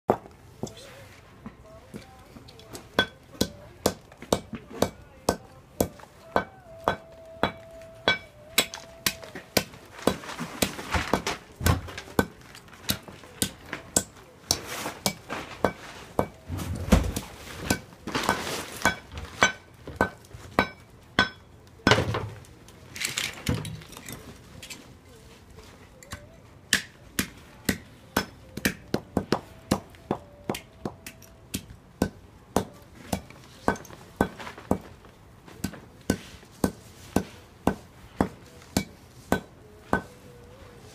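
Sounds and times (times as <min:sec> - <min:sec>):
hammer pounding shells on metal: 0:03.0 - 0:08.8.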